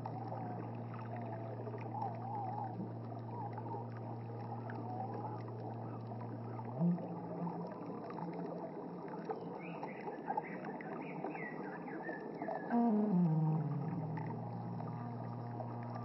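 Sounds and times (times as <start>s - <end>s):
creek water over rocks: 0.0s - 12.7s.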